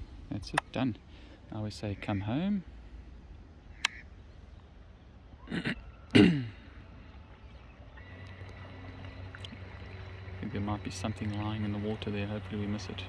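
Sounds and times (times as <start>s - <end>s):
man clearing his throat: 5.4s - 6.6s.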